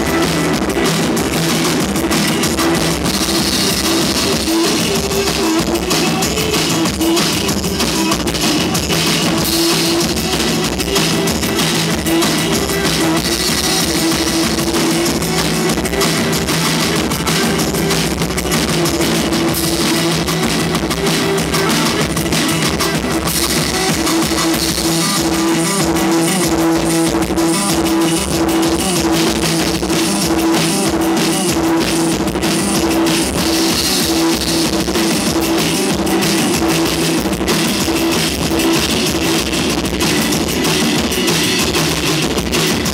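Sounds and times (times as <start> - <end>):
drum and cymbal hits: 0.0 - 42.9
live rock band playing: 0.0 - 42.9.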